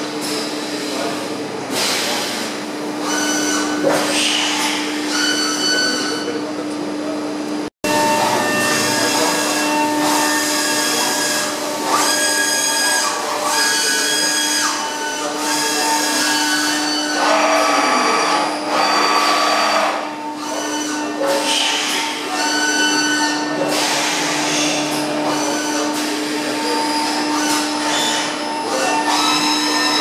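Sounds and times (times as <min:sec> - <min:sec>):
high whining tones: 0:07.8 - 0:30.0.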